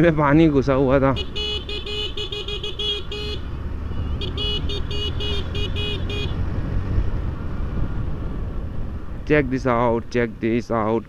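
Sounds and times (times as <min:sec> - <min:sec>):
motorcycle engine rumble: 0:00.0 - 0:11.0
electronic horn short beeps: 0:01.2 - 0:06.4
wind on microphone: 0:06.3 - 0:09.8.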